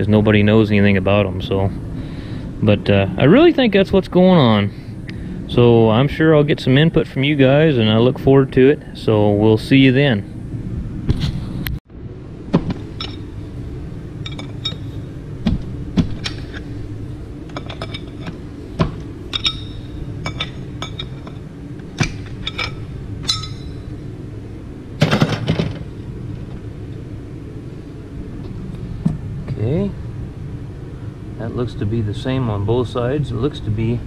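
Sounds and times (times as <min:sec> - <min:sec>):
steady low hum: 0:00.0 - 0:34.0
metal parts clinking: 0:12.9 - 0:13.3, 0:14.2 - 0:15.0, 0:17.5 - 0:24.0.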